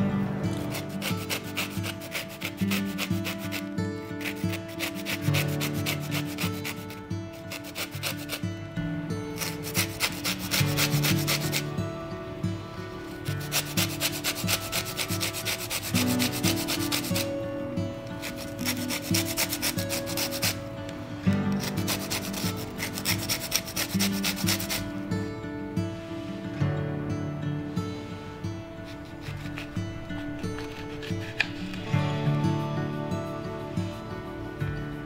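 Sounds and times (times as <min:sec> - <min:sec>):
grater rasping lemon peel: 0:00.5 - 0:08.5, 0:09.3 - 0:11.7, 0:13.0 - 0:17.4, 0:18.1 - 0:20.6, 0:21.5 - 0:24.9, 0:28.8 - 0:31.9.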